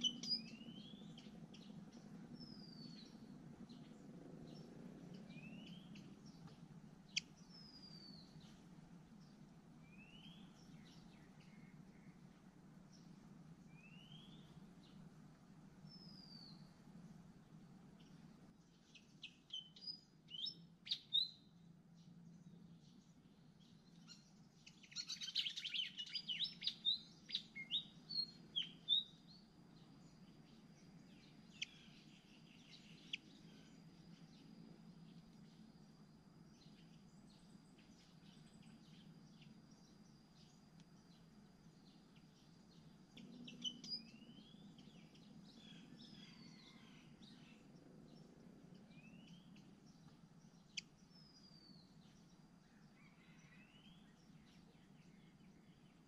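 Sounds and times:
faint steady high whine: 0.0 - 56.0
nestlings begging chirps: 42.8 - 45.9.

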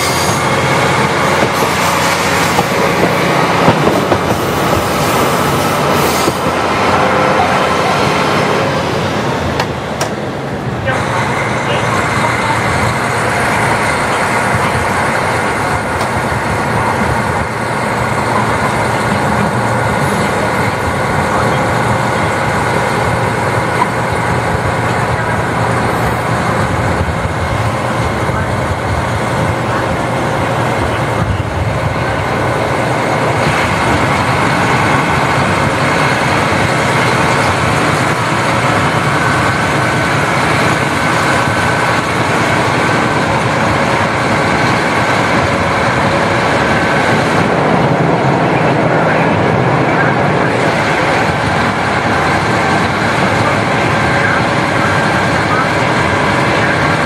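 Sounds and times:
diesel engine drone: 0.0 - 57.0
wheels rumbling on rails: 0.0 - 57.0.

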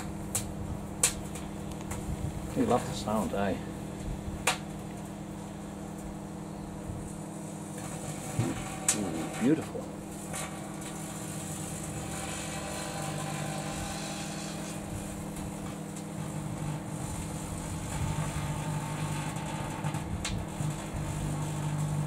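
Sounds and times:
electrical arcing buzz: 0.0 - 22.0
microwave transformer humming: 0.0 - 22.0
sharp crackle: 7.0 - 22.0.

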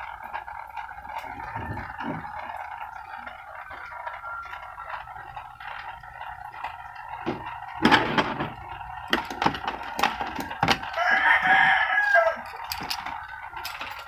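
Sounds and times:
clicks and knocks on metal chassis: 1.1 - 11.6, 12.4 - 14.0
rooster crowing: 1.3 - 5.3, 10.8 - 13.7.

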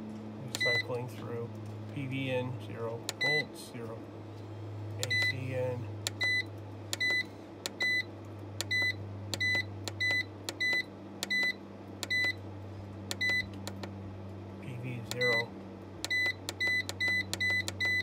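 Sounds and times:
steady low hum: 0.0 - 18.0
button clicks: 5.0 - 5.4, 8.6 - 12.4, 13.1 - 13.9, 15.1 - 15.4.

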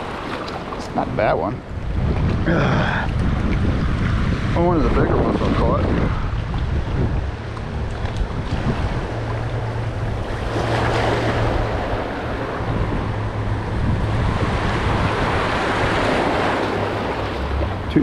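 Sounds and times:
waterside noise: 0.0 - 18.0
wind buffeting microphone: 0.0 - 18.0
steady low hum: 5.8 - 18.0.

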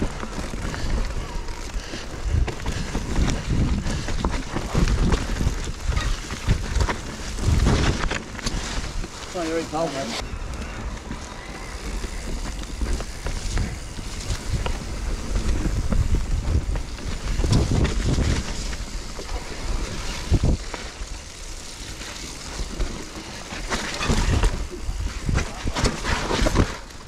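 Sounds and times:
wind buffeting microphone: 0.0 - 20.8
bike knocking and rattling: 0.0 - 27.0
tyres rumbling on dirt trail: 0.0 - 27.0.

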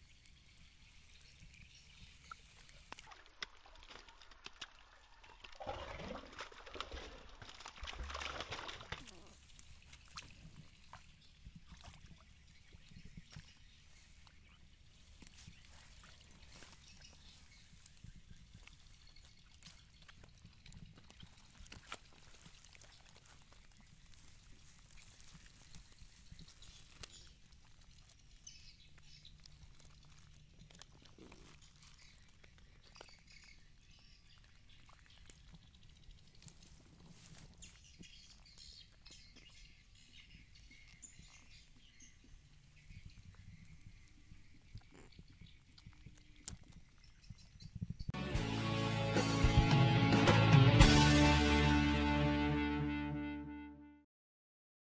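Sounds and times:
faint bird chirps: 31.0 - 48.1.

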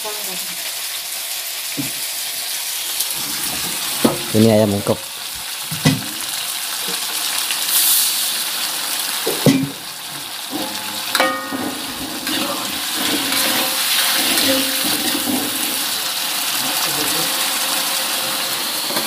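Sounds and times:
food sizzling in hot oil: 0.0 - 19.0
cookware knocks: 5.7 - 6.2, 9.3 - 9.8, 10.5 - 11.8.

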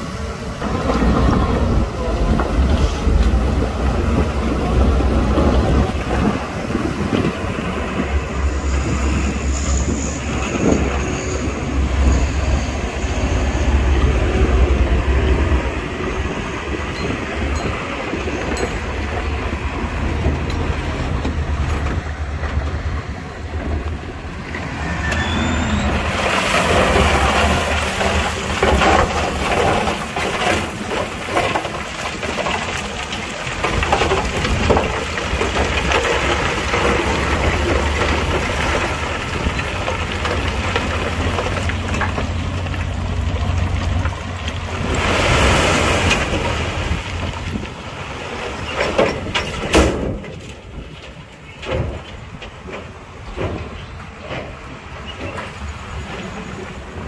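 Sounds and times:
diesel machinery running: 0.0 - 57.0
rock and gravel grinding: 24.5 - 52.2.

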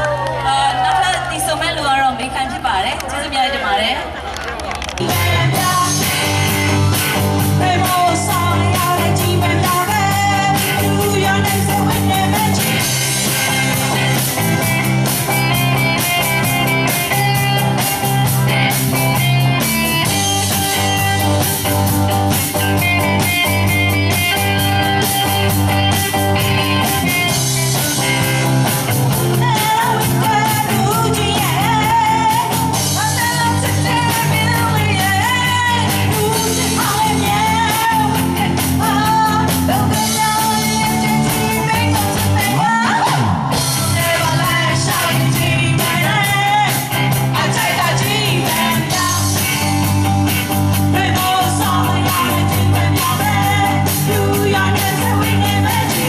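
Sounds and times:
guitar: 4.1 - 56.0
women singing: 5.0 - 6.3, 7.6 - 13.1, 29.3 - 49.8, 50.8 - 56.0
drum kit: 5.0 - 56.0.

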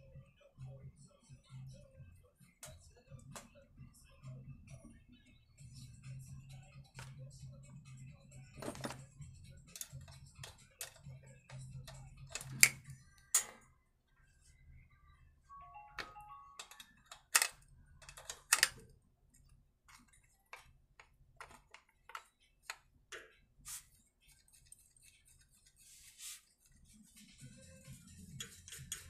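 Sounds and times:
metal clicks of wrench and nuts: 9.7 - 11.1, 11.9 - 13.6, 16.6 - 18.9.

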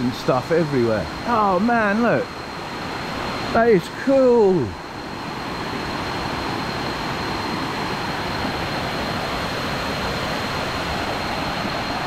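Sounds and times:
stream rushing over rocks: 2.6 - 12.0.

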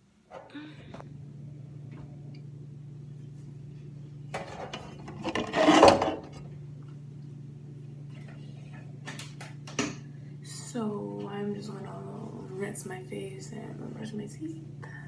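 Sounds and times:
low hum: 0.0 - 15.0
scraping rubbing sound: 5.0 - 6.4.

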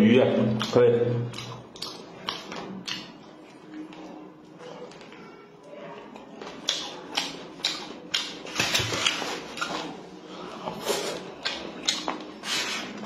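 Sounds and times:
open-mouthed chewing: 0.5 - 5.2, 6.1 - 13.0
wet lip-smacking: 0.6 - 3.2, 11.1 - 12.3.

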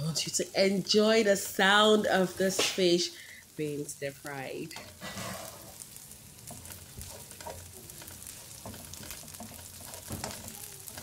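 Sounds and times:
onions sizzling in hot oil: 0.0 - 11.0
spatula scraping pan: 4.7 - 11.0.

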